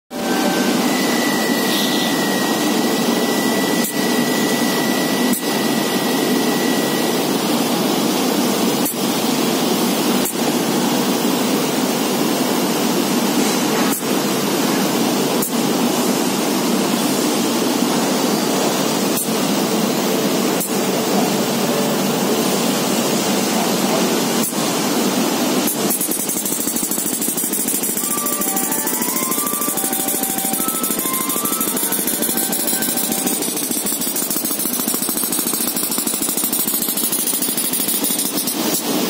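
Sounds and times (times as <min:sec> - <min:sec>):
faint high whistle: 0:00.1 - 0:07.2, 0:28.0 - 0:33.5
air-operated pump hissing: 0:00.1 - 0:39.0.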